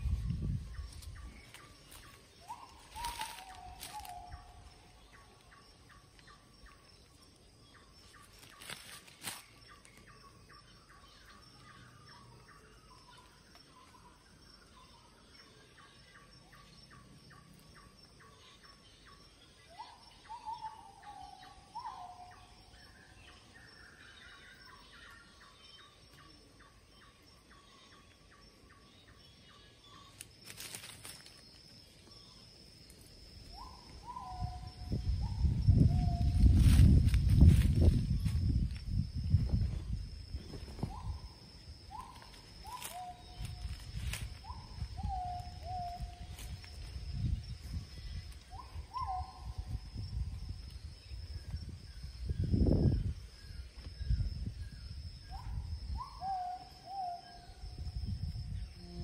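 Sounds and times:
birds calling: 0.0s - 32.5s, 40.3s - 46.7s.

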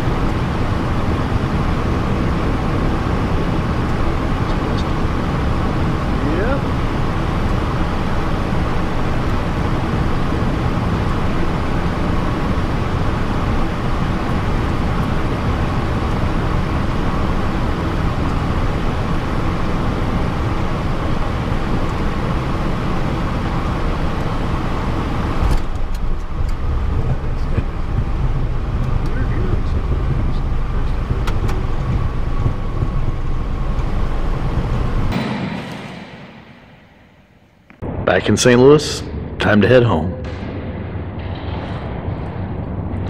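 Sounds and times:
rollout low rumble: 0.0s - 37.2s, 40.1s - 43.0s
jet cockpit airflow and engines: 0.0s - 43.0s.

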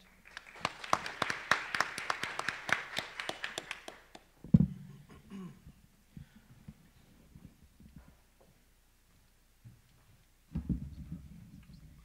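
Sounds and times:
audience applause: 0.0s - 4.3s.

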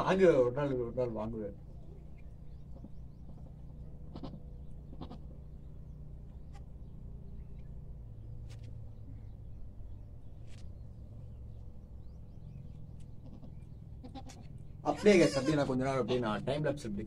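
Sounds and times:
steady low rumble: 0.0s - 14.9s
goat bleating: 2.7s - 5.4s, 13.2s - 16.5s.

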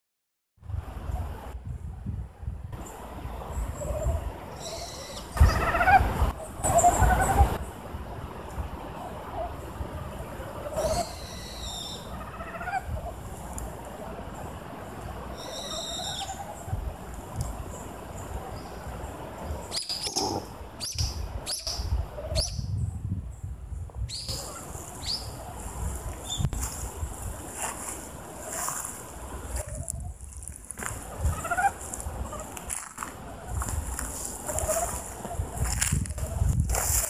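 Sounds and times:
wild animal calls: 20.0s - 20.6s.

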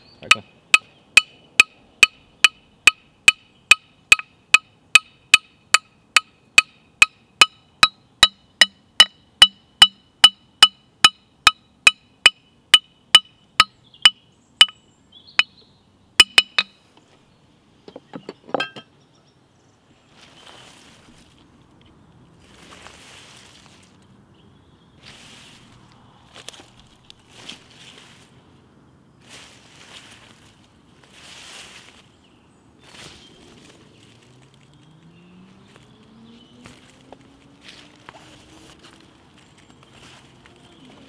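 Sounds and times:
metal bat ringing pings: 0.3s - 14.8s, 16.2s - 16.8s.

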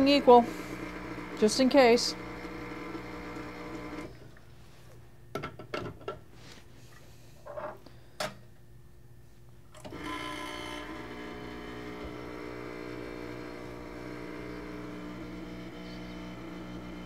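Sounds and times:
espresso pump buzzing hum: 0.0s - 4.2s, 9.8s - 17.0s.

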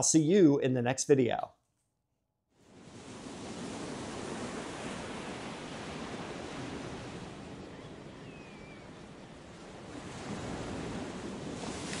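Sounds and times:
ocean surf washing in: 2.7s - 8.2s, 8.9s - 12.0s.

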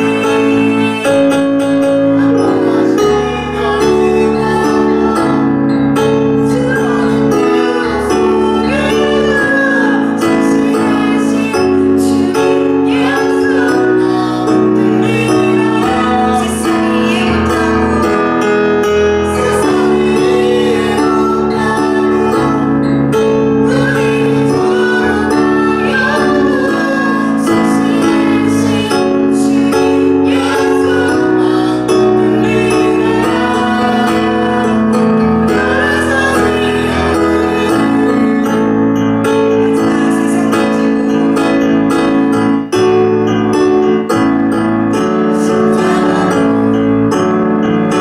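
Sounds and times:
woman singing: 0.0s - 5.5s, 6.1s - 22.7s, 23.4s - 38.5s
worship song with instrumental chords: 0.0s - 48.0s.

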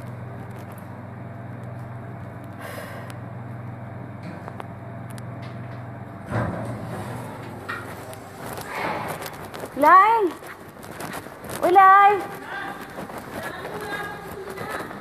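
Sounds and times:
low mechanical motor hum: 0.0s - 15.0s
noisy scuffle: 6.9s - 15.0s.

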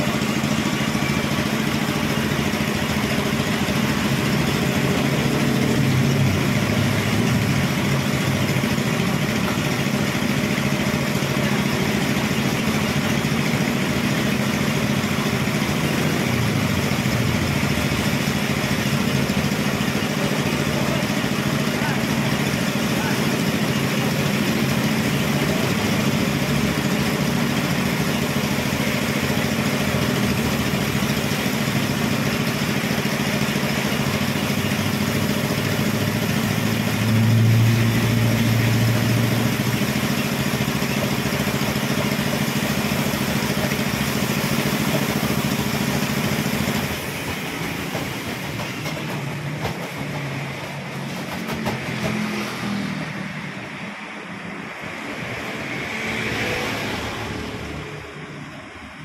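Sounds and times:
drum rushing noise: 0.0s - 57.4s
spin dryer motor humming: 0.0s - 59.0s.

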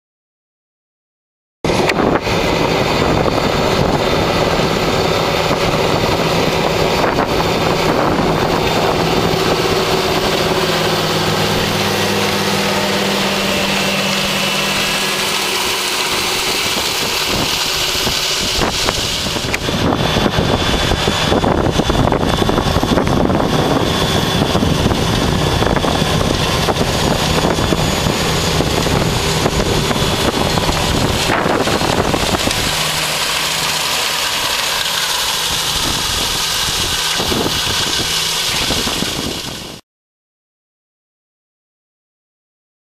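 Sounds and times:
seed drill running noise: 1.7s - 39.8s
tractor diesel engine under load: 1.7s - 39.8s.

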